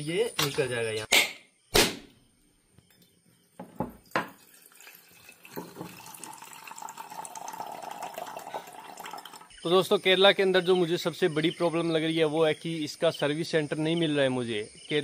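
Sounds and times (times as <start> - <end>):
sharp knocks on coconut: 1.2 - 2.2
liquid pouring: 3.8 - 9.6.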